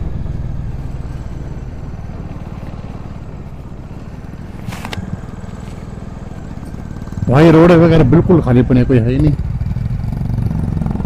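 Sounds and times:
motorcycle engine low revs: 0.0s - 11.0s
brief rustle: 4.6s - 5.8s.

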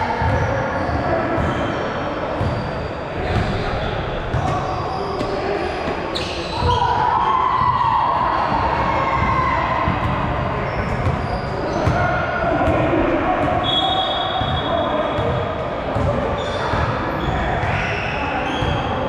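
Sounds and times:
players' voices: 0.0s - 19.0s
shoe squeaks: 0.3s - 6.9s, 10.6s - 12.0s, 16.4s - 18.9s.

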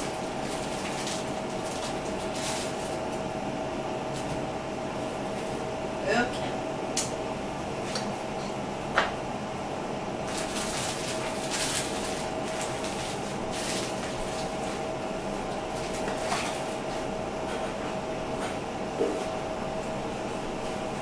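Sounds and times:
plastic wrapping crinkling: 0.0s - 3.3s, 10.2s - 17.0s
steady appliance hum: 0.0s - 21.0s.

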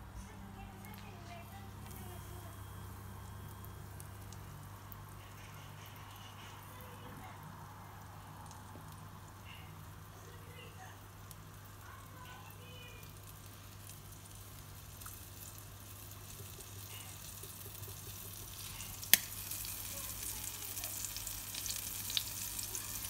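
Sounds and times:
oil popping and crackling: 0.8s - 7.4s, 8.0s - 23.0s
food sizzling in oil: 8.1s - 23.0s.

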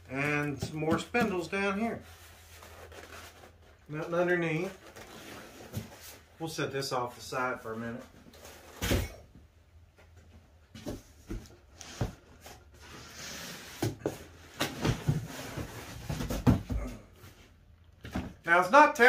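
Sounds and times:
cardboard and plastic rustling: 0.1s - 6.6s, 10.2s - 18.5s.

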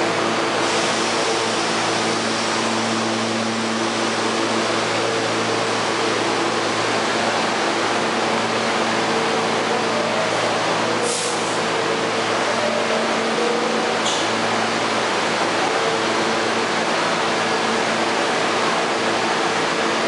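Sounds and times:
subway train equipment hum: 0.0s - 20.0s.

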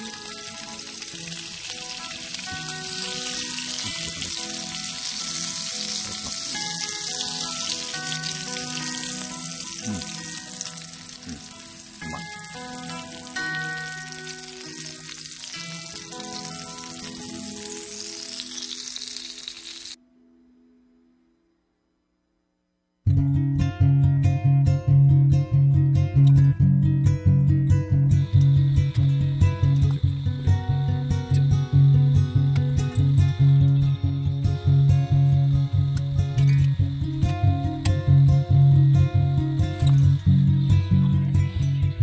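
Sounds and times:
food sizzling in a pan: 0.0s - 20.0s, 28.4s - 41.9s
background music: 0.0s - 21.1s, 23.1s - 42.0s.

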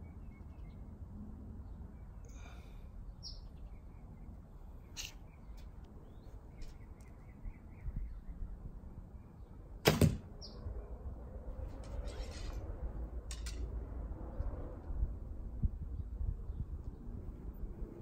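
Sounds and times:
bird chirping: 0.0s - 1.0s, 1.6s - 9.6s, 10.3s - 10.9s
outdoor background noise: 0.0s - 18.0s.

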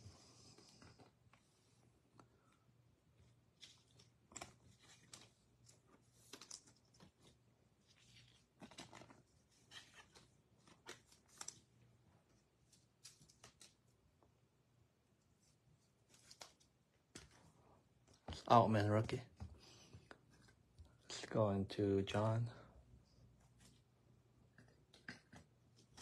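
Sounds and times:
trading cards rustling and clicking: 3.2s - 14.0s, 15.9s - 21.1s, 24.6s - 26.0s.

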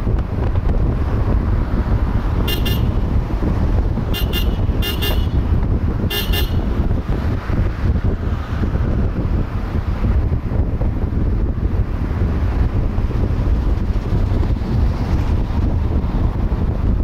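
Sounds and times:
wind buffeting microphone: 0.0s - 17.0s
vehicle horn short beeps: 2.5s - 3.0s, 4.2s - 5.4s, 6.1s - 6.7s.

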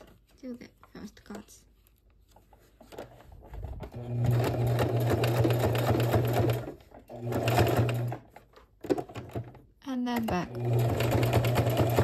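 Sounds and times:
sewing machine stitching: 3.6s - 12.0s.

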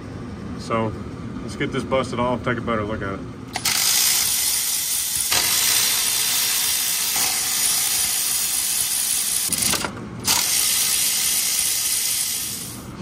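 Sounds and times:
power ratchet hissing: 3.5s - 12.8s.

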